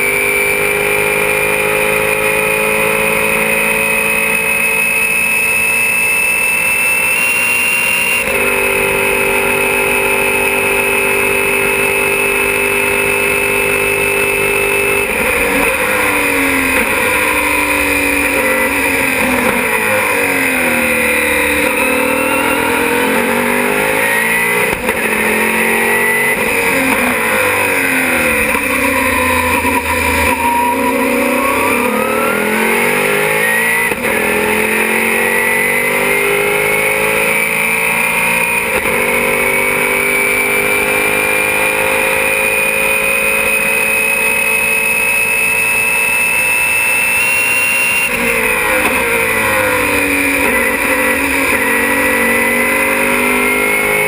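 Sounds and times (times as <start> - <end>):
racing car engine: 0.0 - 54.0
thin high whine: 3.1 - 34.0, 41.7 - 54.0.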